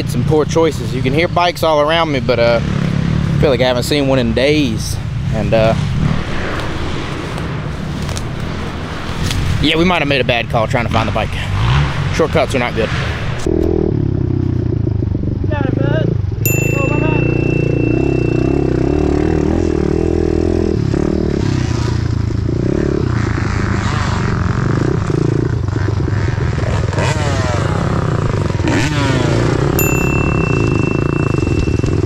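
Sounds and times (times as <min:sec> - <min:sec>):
motorbike engine revving: 0:00.0 - 0:32.0
bright ding: 0:16.5 - 0:20.6, 0:29.8 - 0:32.0
trail clatter: 0:29.8 - 0:32.0.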